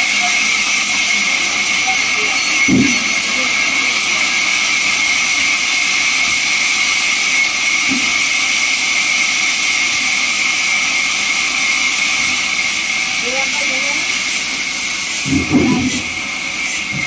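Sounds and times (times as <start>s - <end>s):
band saw cutting wood: 0.0s - 17.0s.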